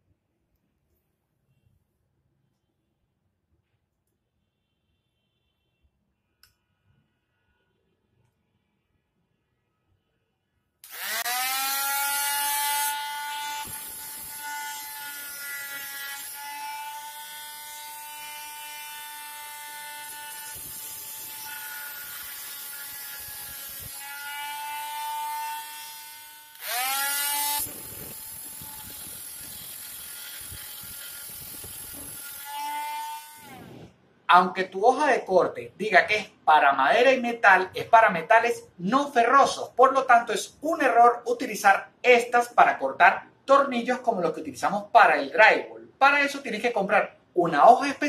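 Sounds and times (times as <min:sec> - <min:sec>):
harsh grinding against screw: 0:10.8 - 0:33.6
multi-tool whining: 0:10.8 - 0:34.0.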